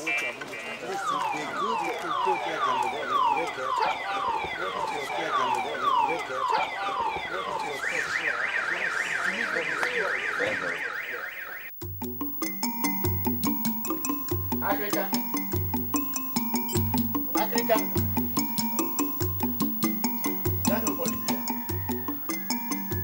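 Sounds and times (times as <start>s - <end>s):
electronic alarm siren: 0.8s - 23.0s
music with drum beats: 11.8s - 23.0s.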